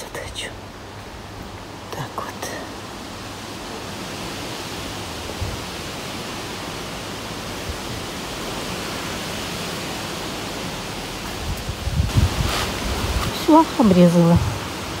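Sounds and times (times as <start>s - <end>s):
strong wind rushing: 4.5s - 6.4s, 7.3s - 15.0s.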